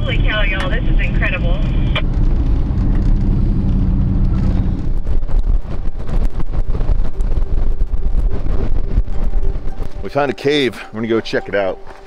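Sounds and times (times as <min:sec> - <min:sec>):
wind on microphone: 0:00.0 - 0:10.5
engine and road drone: 0:00.0 - 0:12.0
tyres on gravel: 0:09.7 - 0:12.0.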